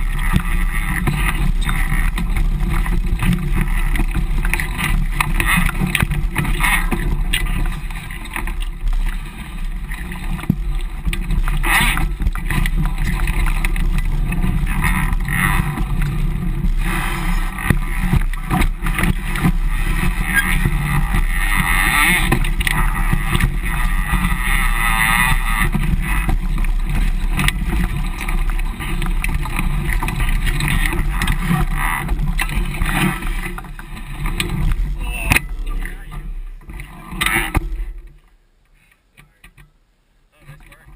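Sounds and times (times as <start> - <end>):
bike rumbling over rocky trail: 0.0 - 39.8, 40.4 - 40.9
knocks from bumps: 10.0 - 38.2.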